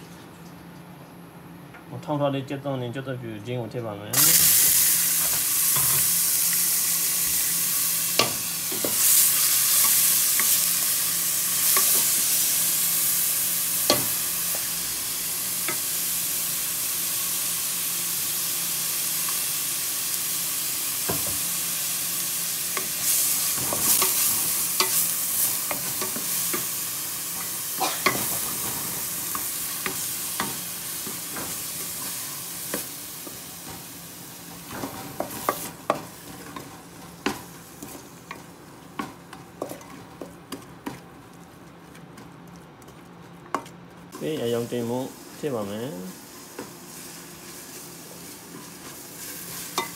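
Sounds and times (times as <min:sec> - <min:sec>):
food sizzling in hot oil: 0:04.1 - 0:40.1, 0:44.1 - 0:49.9.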